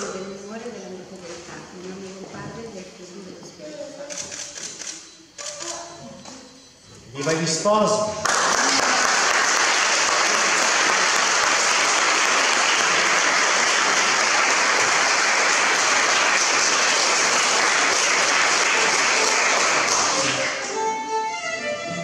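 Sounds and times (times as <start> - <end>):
guests clapping: 8.2 - 20.8.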